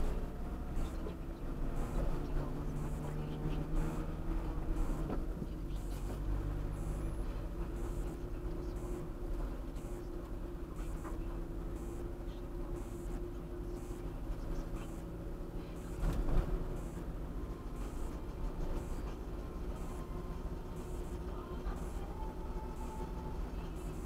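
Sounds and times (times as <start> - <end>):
car engine hum: 0.0 - 24.0.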